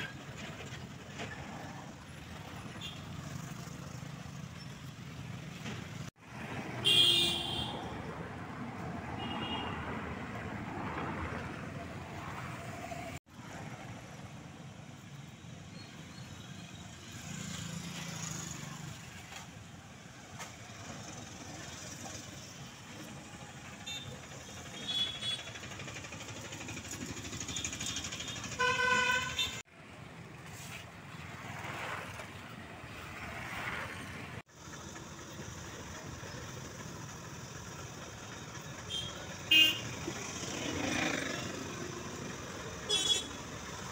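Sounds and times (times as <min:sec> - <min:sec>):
roadside traffic noise: 0:00.0 - 0:43.9
vehicle horns tooting: 0:06.8 - 0:07.9, 0:09.1 - 0:10.0, 0:23.8 - 0:25.6, 0:27.5 - 0:29.6, 0:38.8 - 0:40.0, 0:42.8 - 0:43.4.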